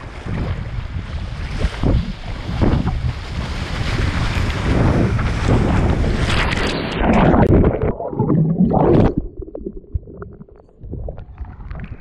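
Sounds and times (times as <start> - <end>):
paddle splashes: 0.0 - 9.2
water rushing along hull: 0.0 - 12.0
wind buffeting microphone: 0.0 - 12.0.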